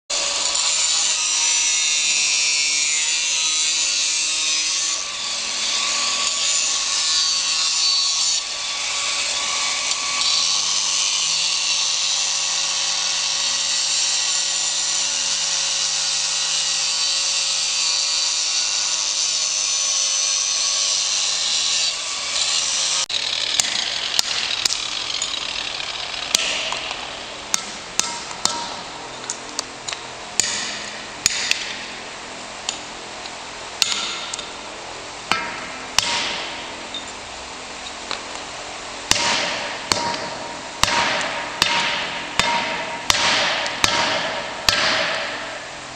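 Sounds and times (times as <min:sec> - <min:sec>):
angle grinder grinding stone: 0:00.1 - 0:32.1.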